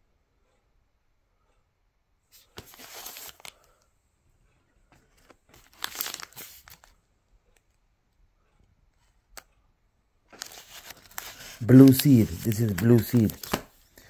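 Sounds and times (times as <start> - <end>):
plastic sleeves crinkling: 2.4 - 3.8, 4.9 - 7.0, 10.3 - 14.0.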